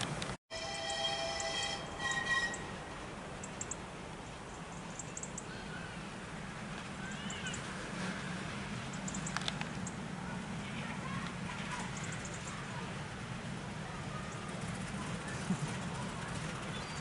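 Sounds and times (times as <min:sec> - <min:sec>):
rising-and-falling calls: 0:00.6 - 0:02.8.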